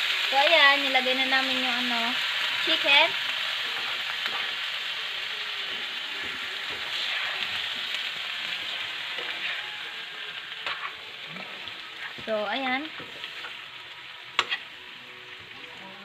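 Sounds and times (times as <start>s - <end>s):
chicken sizzling in frying pan: 0.0s - 16.0s
spoon scraping pan: 5.7s - 13.6s, 14.4s - 14.7s.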